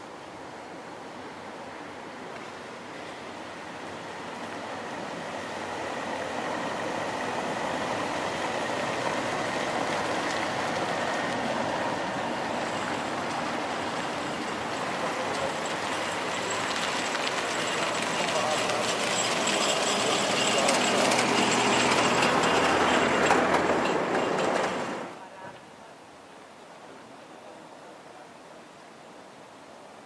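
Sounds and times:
truck driving over cobblestones: 5.2s - 25.2s.

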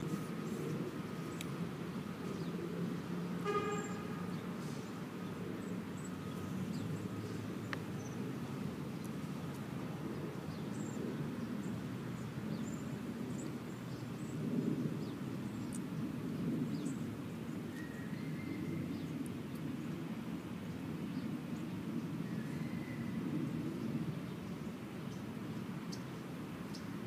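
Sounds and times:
distant traffic rumble: 0.0s - 27.0s
small birds chirping: 2.2s - 20.0s, 23.8s - 27.0s
car horn toot: 3.4s - 4.2s.

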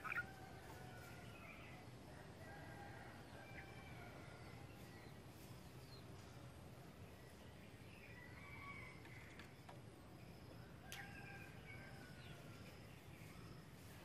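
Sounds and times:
bird chirps: 0.0s - 0.3s.

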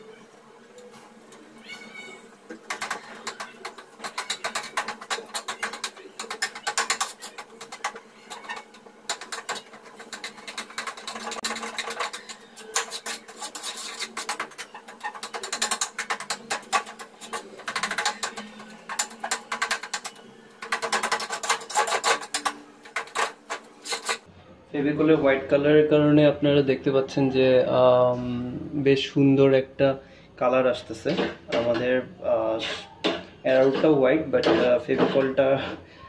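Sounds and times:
spoon scraping metal pot: 2.1s - 24.3s, 32.5s - 35.9s.

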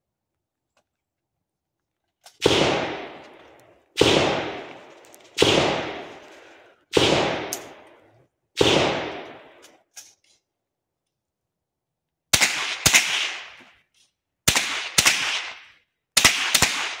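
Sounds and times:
gunshots with echo: 2.4s - 9.8s, 12.4s - 13.6s, 14.5s - 17.0s.

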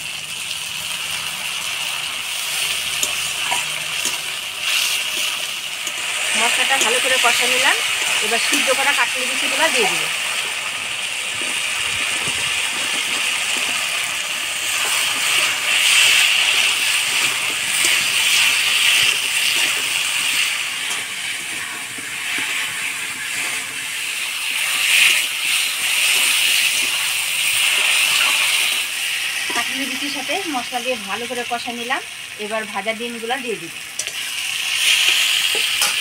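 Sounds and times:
masala sizzling in hot oil: 0.0s - 36.0s
spatula scraping metal pan: 2.5s - 8.8s.

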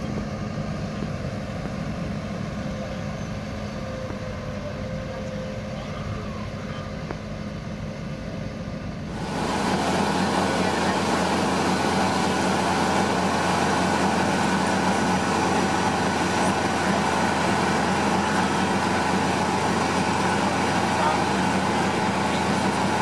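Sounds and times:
faint voices: 0.0s - 23.0s
machinery droning: 0.0s - 23.0s.

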